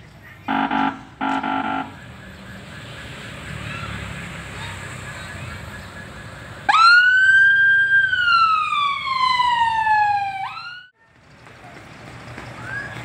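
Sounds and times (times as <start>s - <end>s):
street noise: 0.0s - 13.0s
electronic vehicle siren wailing: 0.5s - 3.7s, 4.9s - 11.0s.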